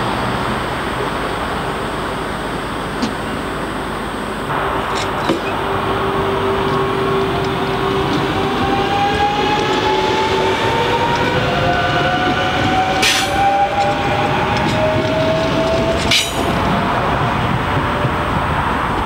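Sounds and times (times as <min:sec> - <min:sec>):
train wheel and rail rumble: 0:00.0 - 0:19.0
train motor whine: 0:04.5 - 0:16.7.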